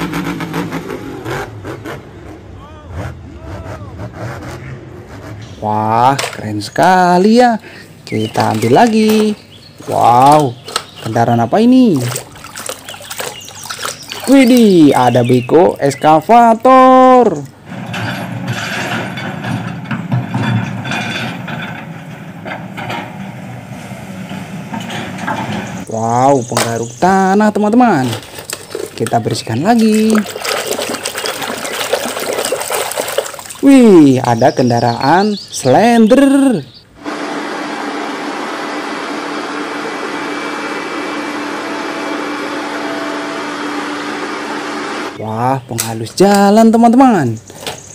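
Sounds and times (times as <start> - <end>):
metal clanks and rattles: 17.6 - 25.9
excavator diesel engine running: 36.8 - 45.2.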